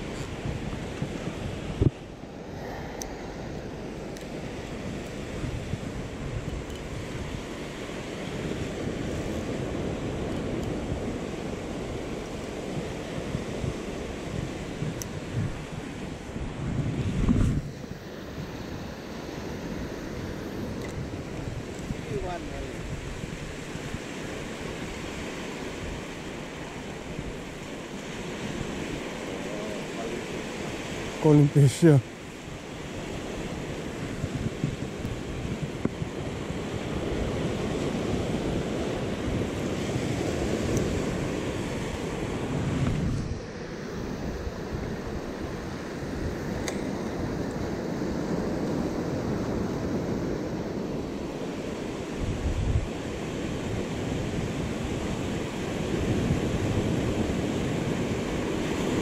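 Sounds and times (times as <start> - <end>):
surf washing up on sand: 0.0 - 59.0
wind rumbling on microphone: 0.0 - 59.0.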